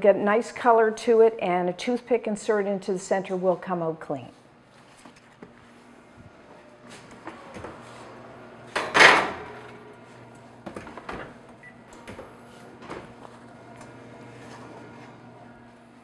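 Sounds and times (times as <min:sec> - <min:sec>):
oven door opening: 0:06.8 - 0:15.7.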